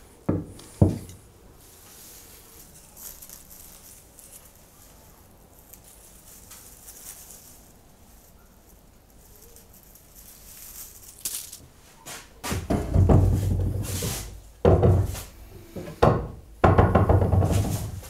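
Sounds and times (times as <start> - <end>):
wooden boards scraping on workbench: 12.4 - 14.4.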